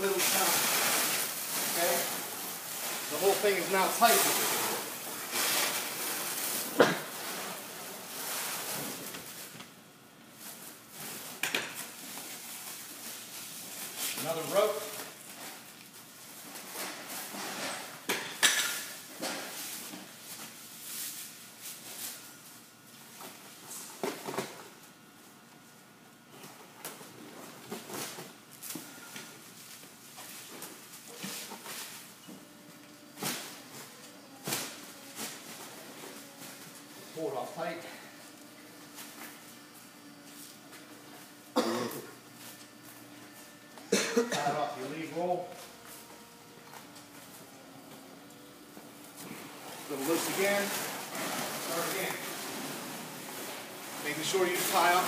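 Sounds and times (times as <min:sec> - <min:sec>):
rustling and scraping: 0:44.8 - 0:55.0.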